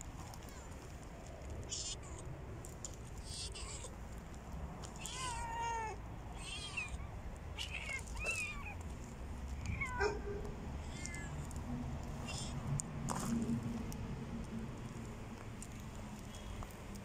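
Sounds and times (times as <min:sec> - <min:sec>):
cats meowing: 0:03.2 - 0:04.0, 0:04.9 - 0:08.9, 0:09.5 - 0:11.6, 0:12.2 - 0:12.6.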